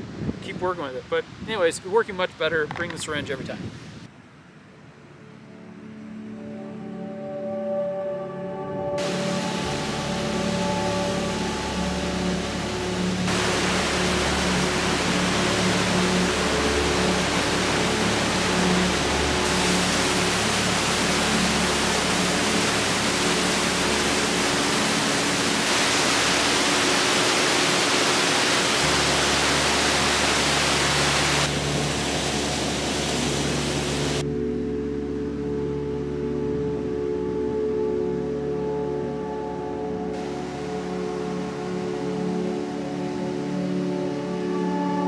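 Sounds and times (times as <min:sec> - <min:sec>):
waterfall crashing into a pool: 0:09.0 - 0:34.2, 0:40.2 - 0:43.5.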